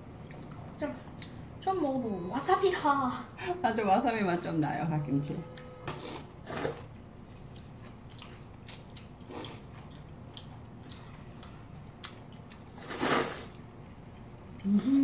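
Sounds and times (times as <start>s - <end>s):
people chewing noodles: 0.0s - 1.4s, 6.0s - 15.0s
loud noodle slurp: 12.8s - 13.6s.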